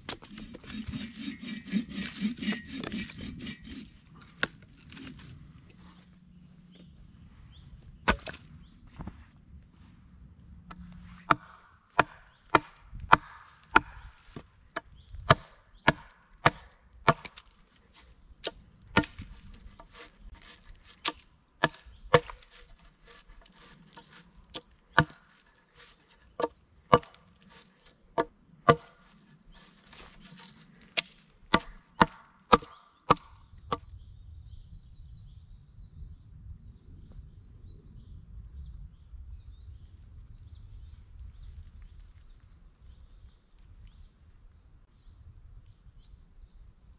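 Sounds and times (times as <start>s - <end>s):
hatchet chopping wood: 0.0s - 5.2s, 8.0s - 8.4s, 10.7s - 33.9s.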